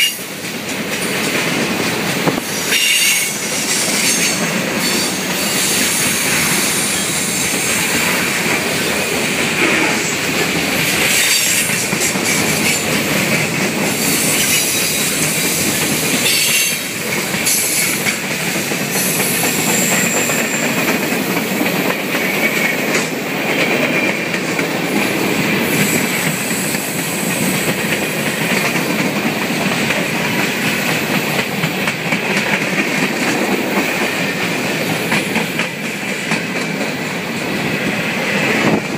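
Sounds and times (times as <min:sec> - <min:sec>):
train wheels clattering on rails: 0:00.0 - 0:38.9
high-pitched wheel squeals: 0:02.7 - 0:07.5.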